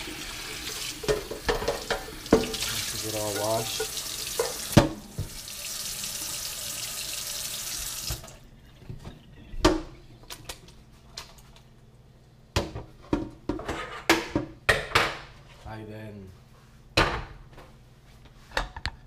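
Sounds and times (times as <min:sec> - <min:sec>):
pot clattering: 0:01.0 - 0:05.1
tap running into metal sink: 0:01.0 - 0:05.4.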